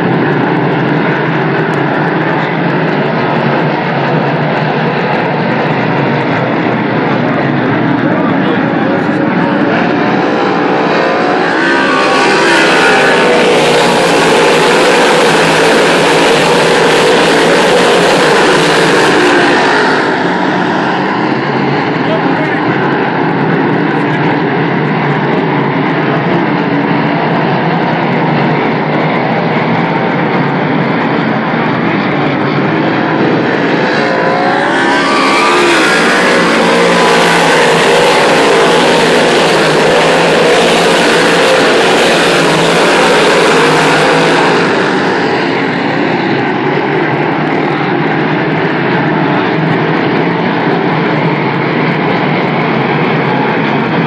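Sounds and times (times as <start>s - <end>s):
race car engines roaring: 0.0s - 54.0s.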